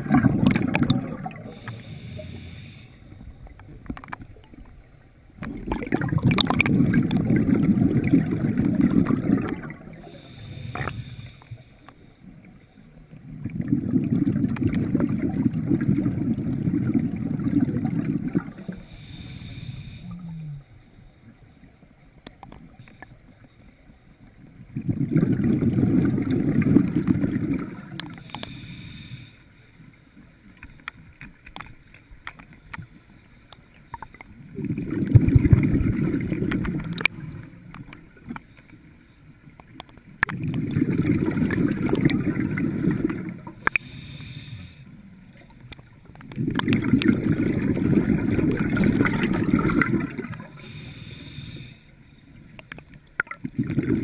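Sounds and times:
exhaled bubbles rushing underwater: 0.0 - 20.7, 24.5 - 28.6, 34.2 - 38.4, 39.5 - 44.5, 45.2 - 51.4, 52.5 - 54.0
regulator inhalation hiss: 1.4 - 3.2, 10.1 - 12.1, 18.8 - 20.2, 28.2 - 29.7, 43.7 - 45.0, 50.5 - 52.2.

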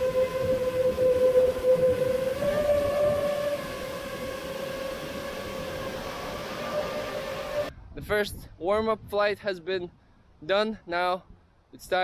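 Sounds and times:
drone motors whining: 0.0 - 7.7
wind rumbling on microphone: 0.0 - 10.3.

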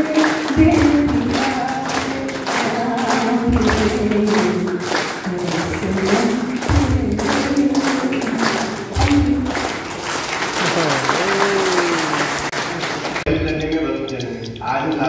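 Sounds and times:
woman singing: 0.0 - 9.9
audience clapping along: 0.0 - 13.3.

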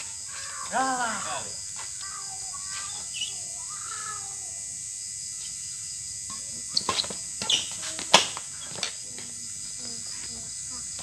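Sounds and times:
faint chirp-like calls: 0.0 - 4.6
steady hiss: 0.0 - 11.0
racket hitting shuttlecock: 6.8 - 8.4.

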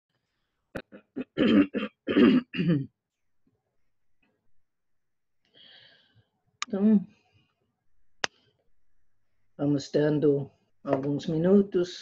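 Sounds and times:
woman clearing her throat: 0.9 - 2.9.

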